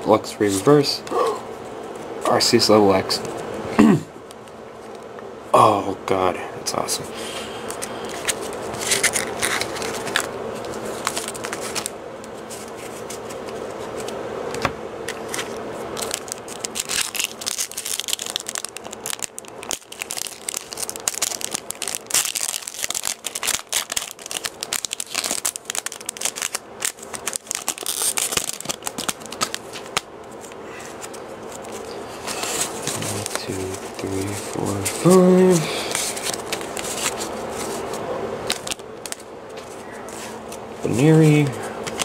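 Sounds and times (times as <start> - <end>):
foil wrapper tearing and crinkling: 7.8 - 12.0, 15.2 - 37.8, 38.4 - 39.3.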